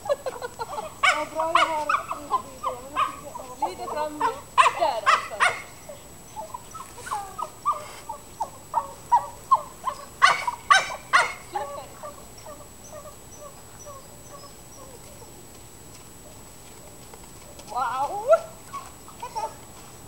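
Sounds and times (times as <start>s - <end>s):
dog barking: 4.2s - 5.7s, 8.8s - 11.5s
dog whining and yipping: 18.3s - 19.6s.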